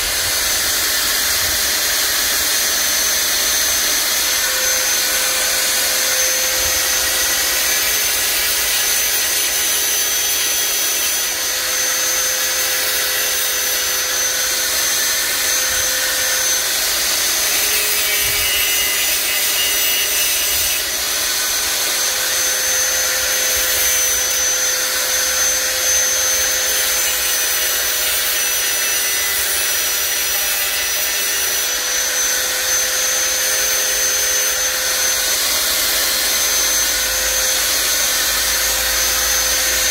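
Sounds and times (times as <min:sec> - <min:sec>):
rotary tool whining: 0:00.0 - 0:39.9.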